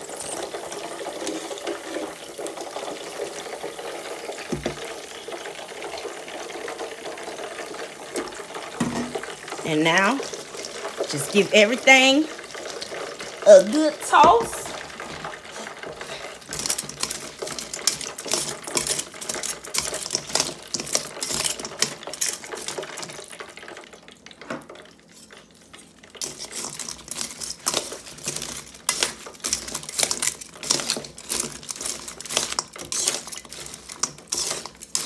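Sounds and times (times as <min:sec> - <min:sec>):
metal tongs clinking in a metal bowl: 0:16.5 - 0:23.3, 0:26.2 - 0:35.0.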